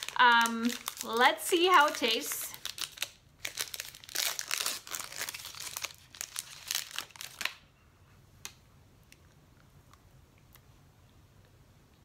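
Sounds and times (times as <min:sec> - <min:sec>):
wrapper tearing and crinkling: 0:00.0 - 0:07.7.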